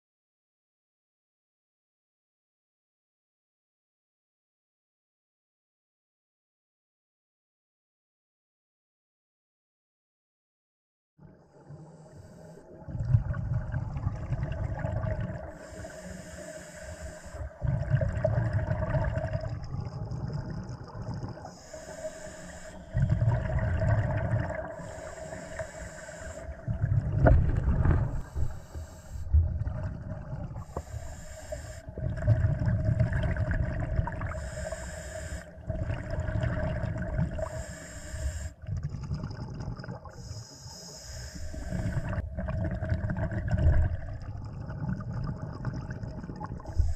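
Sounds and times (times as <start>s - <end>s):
regulator hissing inhalations: 11.8s - 12.7s, 15.5s - 17.6s, 21.4s - 23.2s, 24.6s - 26.7s, 28.2s - 29.4s, 30.6s - 32.0s, 34.3s - 35.6s, 37.4s - 38.6s, 40.1s - 42.2s, 46.7s - 46.9s
bubbling exhalations: 12.7s - 16.0s, 17.4s - 21.9s, 22.9s - 34.8s, 35.5s - 37.7s, 38.6s - 40.3s, 41.4s - 46.9s.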